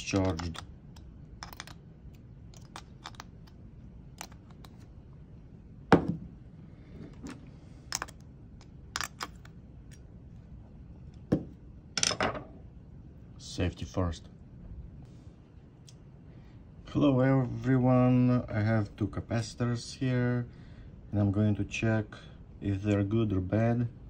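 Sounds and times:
screwdriver clicking on metal terminals: 0.0s - 1.8s, 2.5s - 3.6s, 4.2s - 4.8s.

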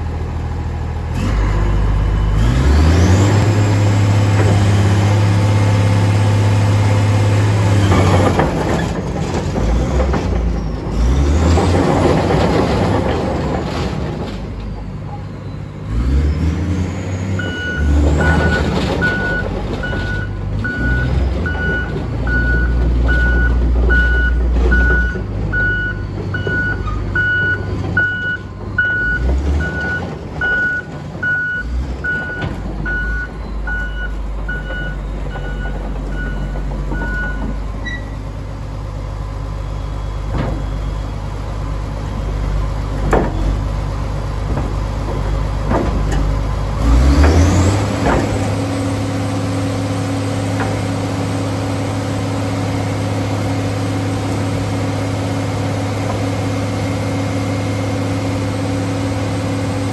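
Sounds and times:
bulldozer diesel engine running: 0.0s - 59.9s
reversing alarm beeping: 17.4s - 38.2s.

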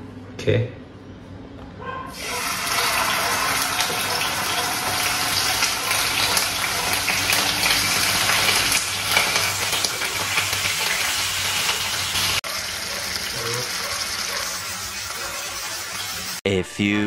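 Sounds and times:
chicken sizzling in a frying pan: 2.1s - 16.4s
oil spattering crackles: 2.2s - 15.0s.

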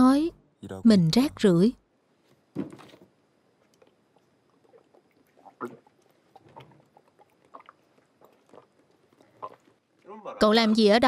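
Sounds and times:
man gulping from a bottle: 3.6s - 10.0s.

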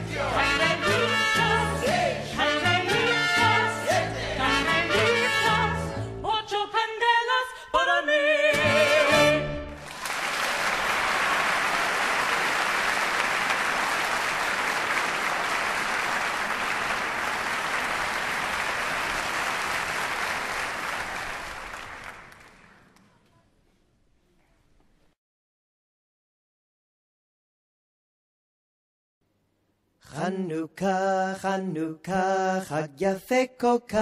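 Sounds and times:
person singing with music: 0.0s - 9.7s, 30.0s - 34.0s
audience applauding: 9.7s - 23.0s.

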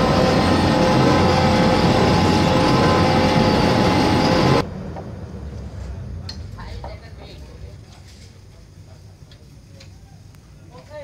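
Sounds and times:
mixer motor humming: 0.0s - 4.6s.

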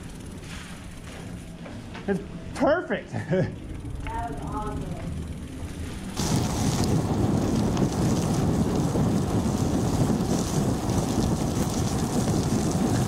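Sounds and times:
bike tyre rumble: 0.0s - 2.1s, 3.6s - 13.0s
wind buffeting microphone: 6.2s - 13.0s.

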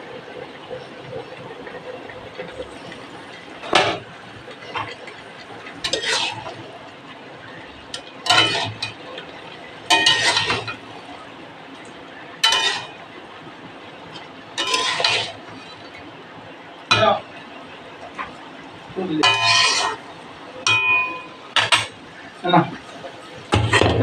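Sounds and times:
metal spatula scraping a wok: 5.8s - 6.6s, 8.3s - 9.0s, 9.9s - 10.8s, 12.4s - 13.0s, 14.6s - 15.8s, 19.2s - 20.0s.

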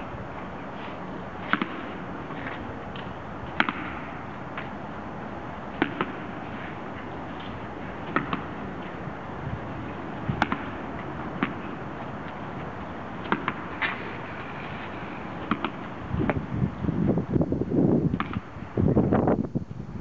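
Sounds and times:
steady background hiss: 0.0s - 20.0s
sharp echoing cracks: 1.4s - 4.8s, 5.7s - 9.1s, 10.2s - 12.5s, 13.2s - 16.4s.

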